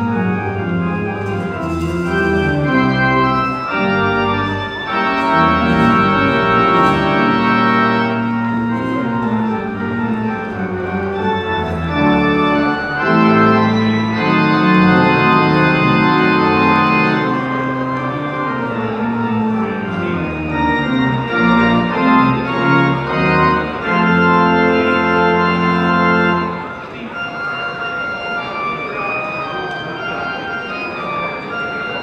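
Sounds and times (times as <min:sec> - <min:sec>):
church organ chords: 0:00.0 - 0:32.0.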